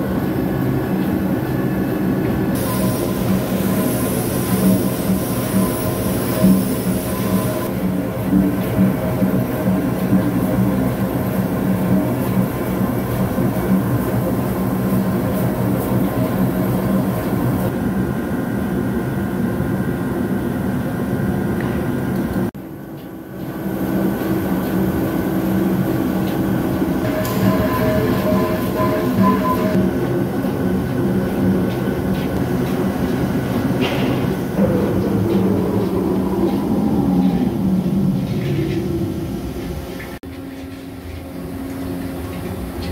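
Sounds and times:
lathe machine hum with held tones: 0:23.4 - 0:31.2.

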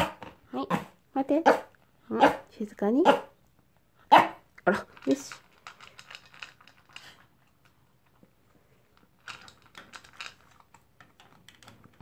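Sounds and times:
dog crunching food: 0:04.6 - 0:12.0.

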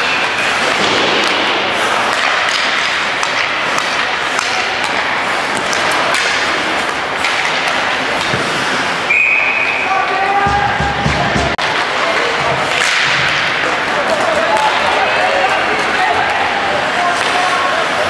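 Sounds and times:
skates scraping on ice: 0:00.0 - 0:09.1, 0:09.8 - 0:18.0
hockey sticks and puck clacking: 0:00.0 - 0:18.0
thud: 0:00.7 - 0:02.7.

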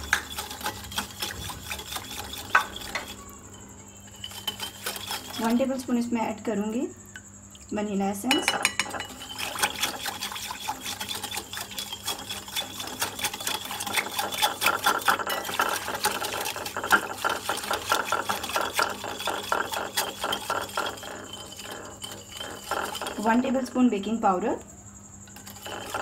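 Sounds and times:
whisk clinking in glass bowl: 0:00.0 - 0:03.3, 0:04.0 - 0:05.8, 0:08.3 - 0:23.6.

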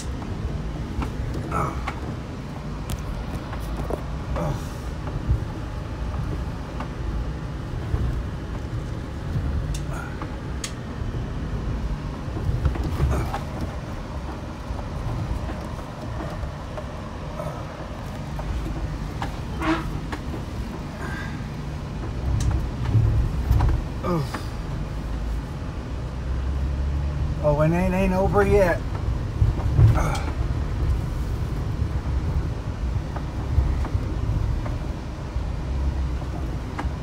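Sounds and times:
car rumbling on rough track: 0:00.0 - 0:37.0
knocks and rattles: 0:11.8 - 0:24.5.

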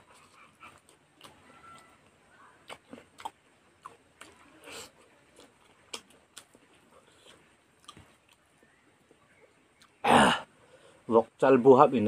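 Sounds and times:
person chewing with wet mouth clicks: 0:00.0 - 0:01.9, 0:02.6 - 0:08.7, 0:09.7 - 0:10.0.

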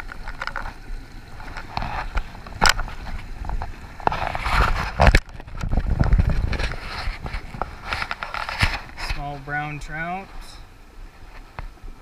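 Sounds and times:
rustling against camera housing: 0:00.0 - 0:09.3.

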